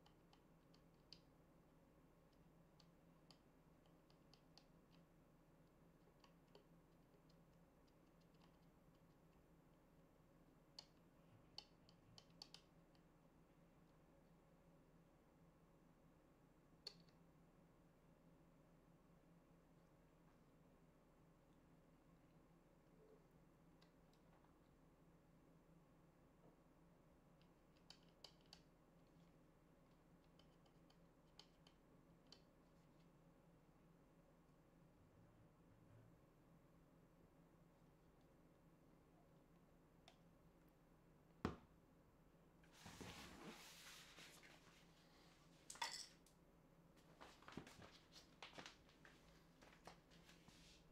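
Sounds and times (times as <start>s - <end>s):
faint clicks handling plastic tube: 16.8s - 17.2s.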